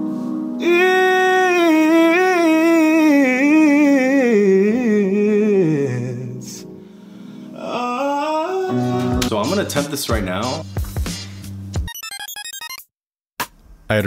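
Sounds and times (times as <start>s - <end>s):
man singing vocal riff: 0.6s - 6.7s, 7.5s - 10.6s.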